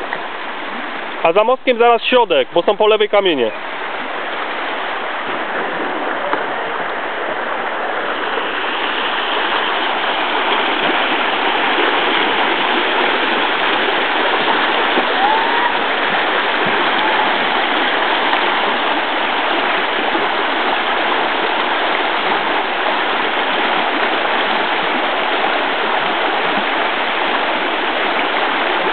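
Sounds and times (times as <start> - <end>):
river rapid rushing: 0.0 - 28.9.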